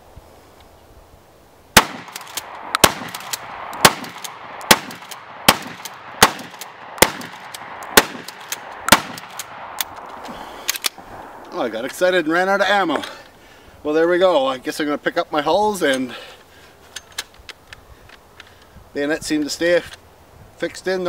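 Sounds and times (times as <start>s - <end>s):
shotgun shots: 1.8s - 9.8s
light clicks of shotgun action: 1.8s - 11.5s, 16.9s - 18.8s.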